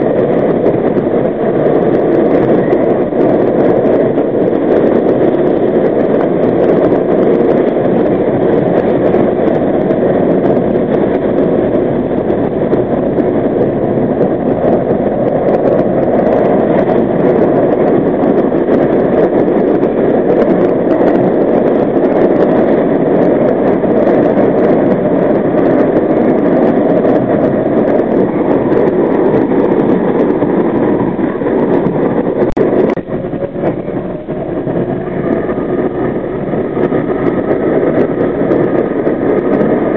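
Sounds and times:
subway train rumbling in tunnel: 0:00.0 - 0:39.9.

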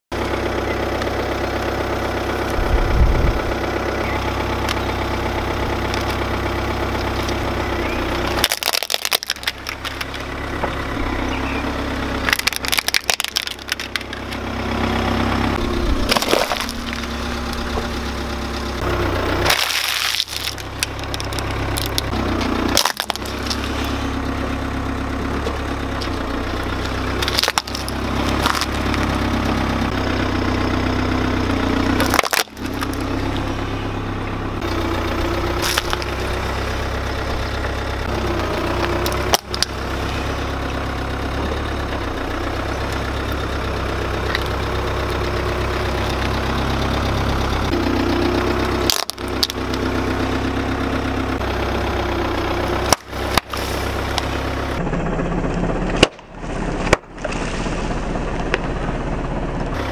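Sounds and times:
car engine running low: 0:00.0 - 0:59.9
plastic objects cracking under tyre: 0:05.6 - 0:07.6, 0:08.2 - 0:10.9, 0:12.1 - 0:15.1, 0:15.8 - 0:18.6, 0:19.4 - 0:23.8, 0:25.3 - 0:29.9, 0:31.9 - 0:33.6, 0:34.7 - 0:40.6, 0:41.3 - 0:50.3, 0:52.8 - 0:54.4, 0:55.9 - 0:58.8.

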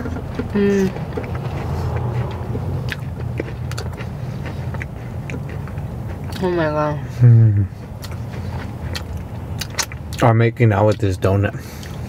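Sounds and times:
people chewing soft food: 0:00.0 - 0:12.0
steady low rumble: 0:00.0 - 0:12.0.

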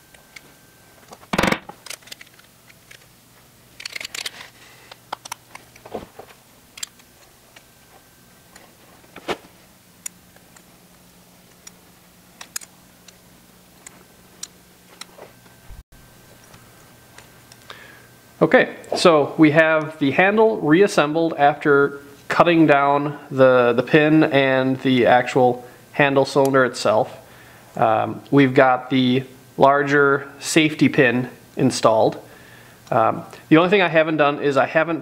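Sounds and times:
small metal parts clicking: 0:01.8 - 0:03.1, 0:03.8 - 0:05.8.

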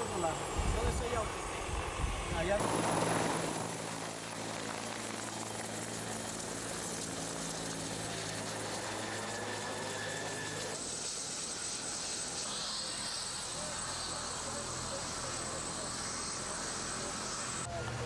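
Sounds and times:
helicopter engine and rotor: 0:00.0 - 0:18.0
thin high steady tone: 0:08.0 - 0:18.0.

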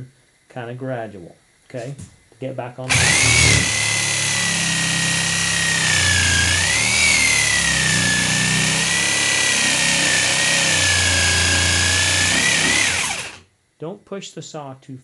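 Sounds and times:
jigsaw cutting wood: 0:02.9 - 0:13.4.

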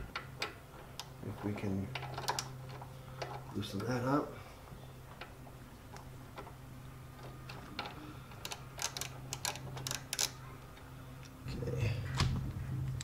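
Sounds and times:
steady low hum: 0:00.0 - 0:13.0
ratchet wrench clicking: 0:07.8 - 0:10.4.

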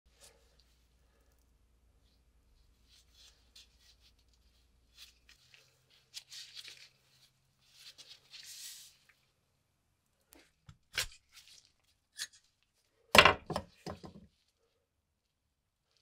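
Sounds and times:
gloves rustling: 0:00.1 - 0:09.5.

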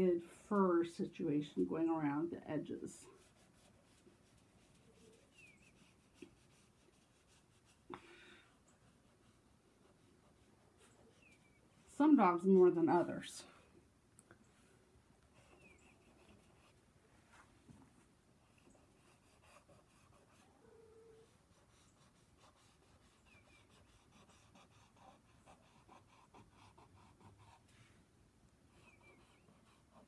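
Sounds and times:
crayon scratching on paper: 0:03.0 - 0:07.9, 0:15.4 - 0:16.8, 0:18.4 - 0:20.4, 0:21.2 - 0:27.7, 0:28.7 - 0:30.0.

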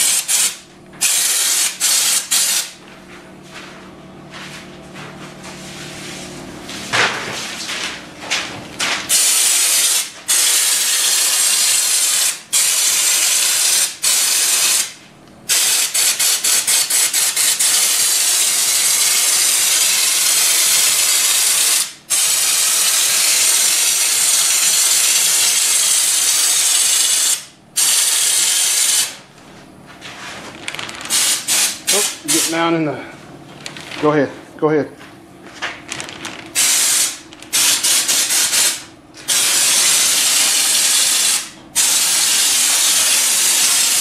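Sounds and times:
spray gun air hiss: 0:00.0 - 0:02.8, 0:09.1 - 0:29.1, 0:31.1 - 0:32.6, 0:36.6 - 0:44.0.

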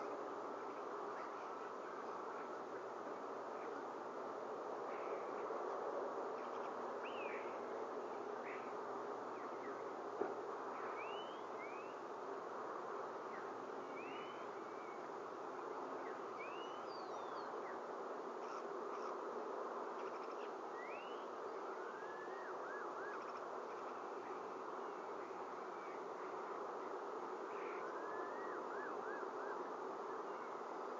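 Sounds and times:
rushing outdoor noise: 0:00.0 - 0:30.9
faint bird chirps: 0:06.3 - 0:07.7, 0:10.7 - 0:12.1, 0:13.2 - 0:15.1, 0:15.9 - 0:19.2, 0:19.9 - 0:30.7.

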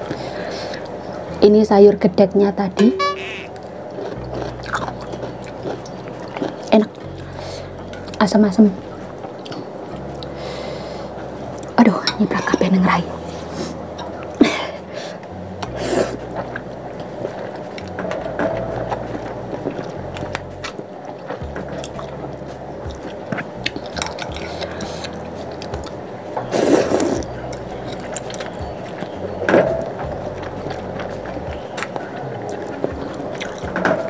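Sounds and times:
chewing: 0:03.6 - 0:11.8, 0:13.4 - 0:34.0
person slurping noodles: 0:26.5 - 0:27.2.

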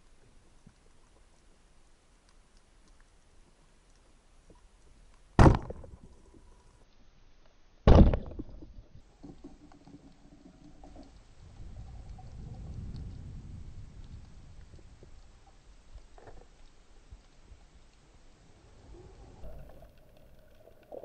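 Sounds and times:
speargun shots underwater: 0:05.4 - 0:06.0, 0:07.9 - 0:08.6
low underwater rumble: 0:08.4 - 0:21.0.

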